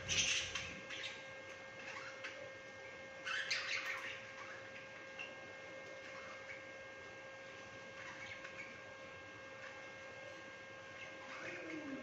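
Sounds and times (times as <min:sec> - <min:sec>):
budgerigars chirping: 0:00.0 - 0:01.2, 0:03.3 - 0:04.2
steady hum: 0:00.0 - 0:12.0.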